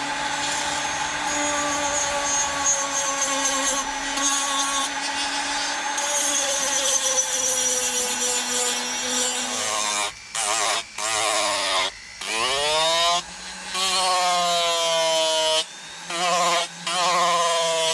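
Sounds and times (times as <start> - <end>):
rotary tool grinding wood: 0.0 - 17.9.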